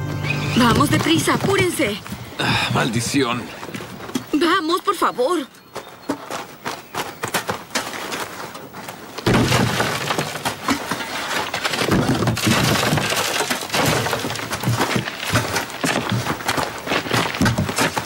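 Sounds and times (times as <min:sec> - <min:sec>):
earth and stones thrown into grave: 0:07.3 - 0:18.0.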